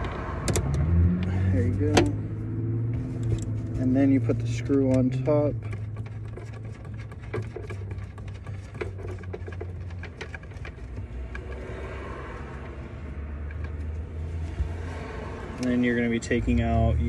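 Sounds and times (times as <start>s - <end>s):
screw clicks and rattles: 4.6s - 11.6s.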